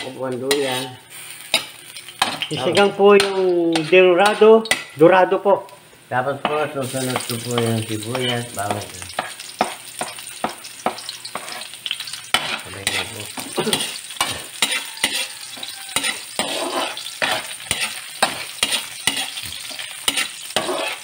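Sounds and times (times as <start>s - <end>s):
vegetables sizzling in oil: 0.0s - 21.0s
utensil scraping pan: 10.4s - 21.0s.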